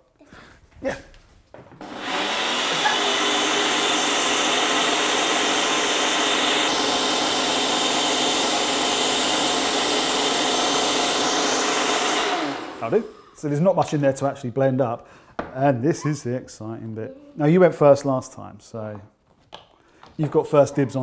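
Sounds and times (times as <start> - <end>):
blender motor running: 1.8 - 13.3.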